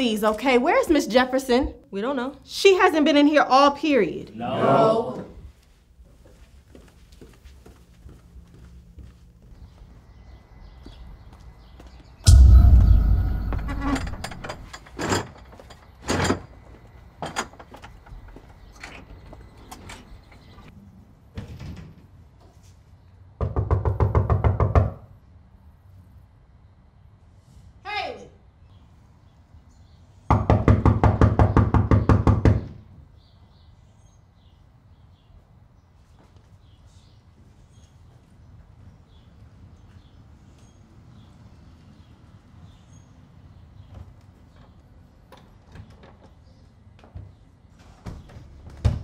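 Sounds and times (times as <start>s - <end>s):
soft scuffing footsteps: 5.5s - 10.1s
loud bang with deep boom: 12.3s - 14.7s
rapid knocking on a door: 23.4s - 25.0s, 30.3s - 32.8s.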